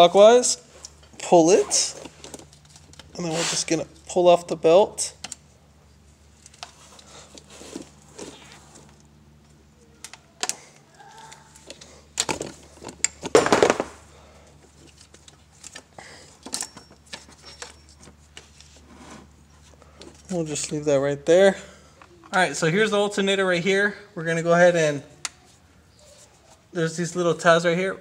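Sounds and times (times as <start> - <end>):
rustling scrape: 3.2 - 3.8, 6.7 - 8.9, 18.2 - 19.4.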